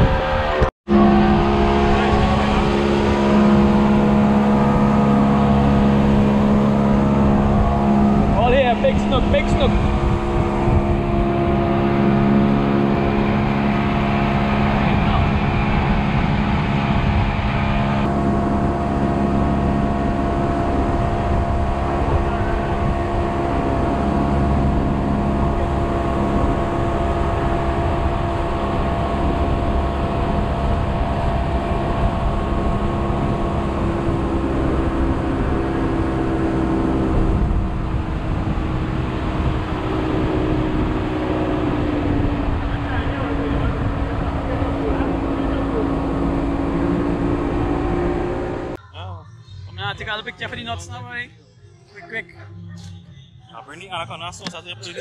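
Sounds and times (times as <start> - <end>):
boat motor droning: 0.0 - 48.9.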